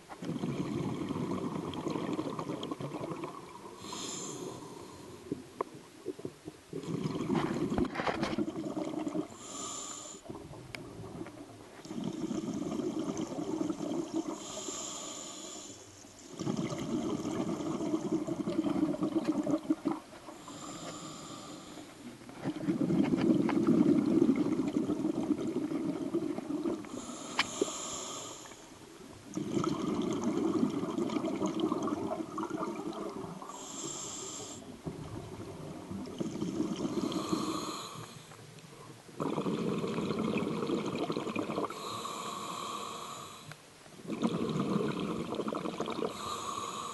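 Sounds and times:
exhaust bubbles gushing: 0.3 - 3.8, 6.7 - 9.4, 16.4 - 20.1, 22.7 - 26.9, 29.3 - 33.5, 39.2 - 41.8, 44.0 - 46.2
regulator hissing inhale: 3.8 - 5.2, 9.3 - 10.3, 14.3 - 16.0, 20.4 - 22.0, 26.9 - 28.8, 33.4 - 34.8, 36.8 - 38.4, 41.7 - 43.6, 46.0 - 46.9.

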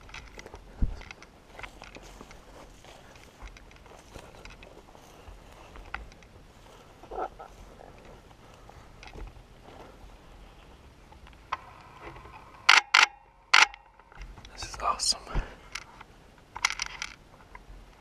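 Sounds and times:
faint rustling: 0.0 - 12.6
camera shutter clicks: 12.6 - 13.8.

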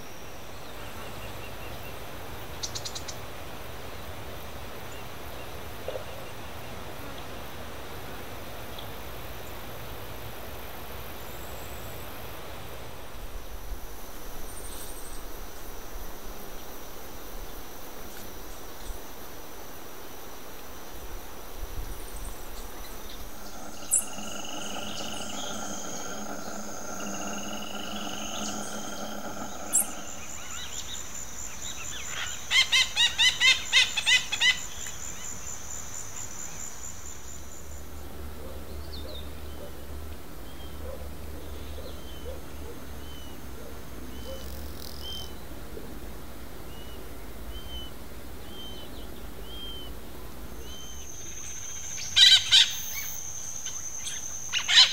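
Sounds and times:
high insect drone: 6.5 - 39.4, 46.8 - 54.9
loud pitched calls: 22.9 - 31.2.

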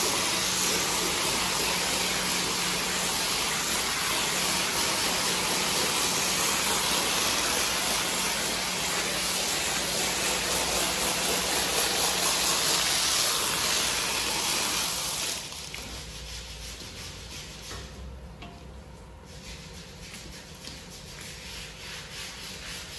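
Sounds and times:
pressure washer water jet hissing: 0.0 - 16.8.

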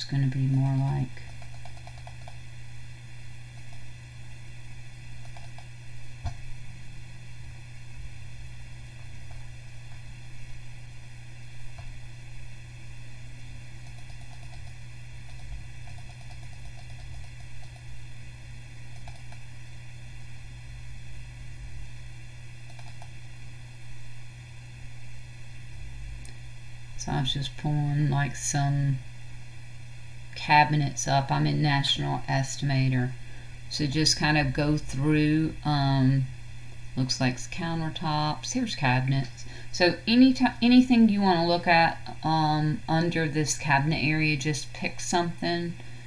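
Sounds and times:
low electrical hum: 0.0 - 46.0
computer mouse clicks: 0.7 - 2.4, 3.6 - 3.8, 5.2 - 6.4, 13.8 - 17.9, 18.9 - 19.5, 22.7 - 23.2.

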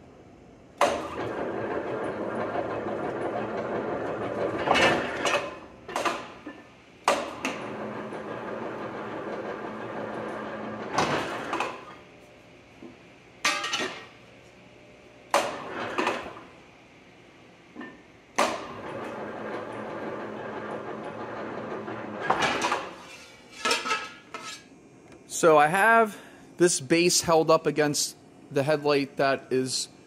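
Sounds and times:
plate-rolling machine humming: 0.8 - 24.7.

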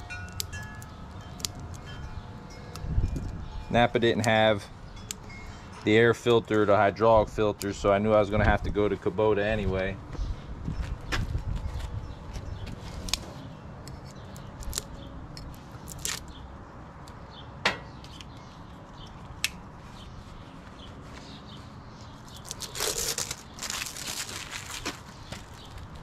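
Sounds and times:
rustling and scraping: 10.2 - 16.3, 18.0 - 26.0.

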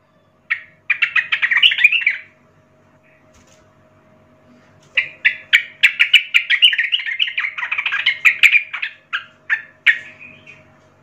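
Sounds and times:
bird singing chattering notes: 0.5 - 2.4, 5.0 - 10.7.

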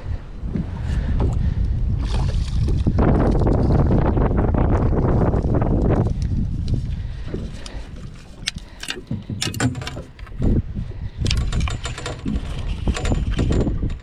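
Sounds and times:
wind rumble on microphone: 0.0 - 14.0
fishing gear clicks and rattles: 5.9 - 10.6, 11.2 - 14.0.

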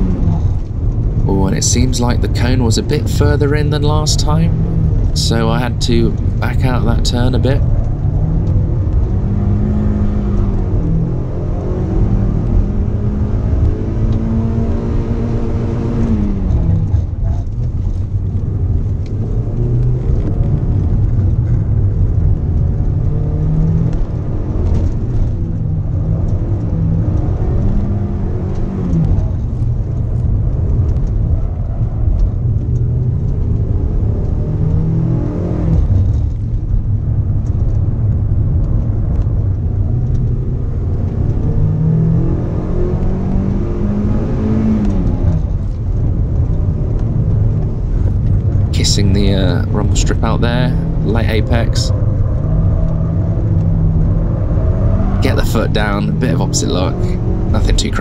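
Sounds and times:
car engine revving hard: 1.3 - 17.1, 33.2 - 36.2, 40.0 - 58.0.

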